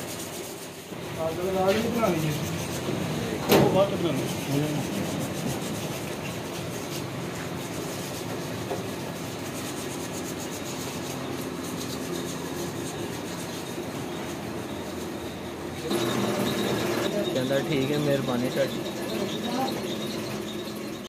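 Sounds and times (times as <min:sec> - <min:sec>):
machine hum and clatter: 0:00.0 - 0:21.0.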